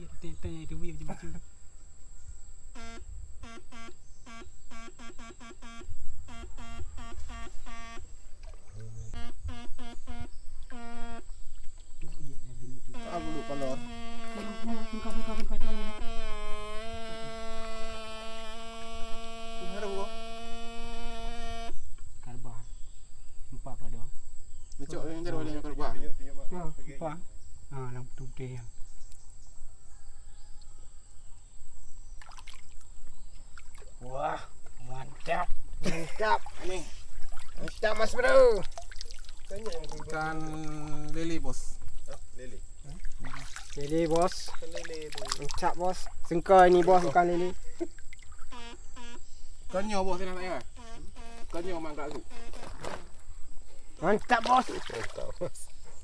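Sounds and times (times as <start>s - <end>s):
faint high whine: 0.0s - 11.4s, 12.2s - 22.7s, 48.3s - 53.8s
electric fish-stunner buzzing: 2.7s - 11.4s, 12.9s - 21.8s, 46.5s - 53.0s
man speaking: 12.3s - 14.7s.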